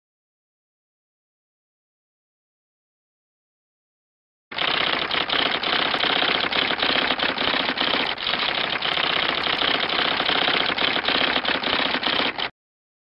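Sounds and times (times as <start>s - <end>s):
rapid keyboard typing: 4.6s - 12.5s.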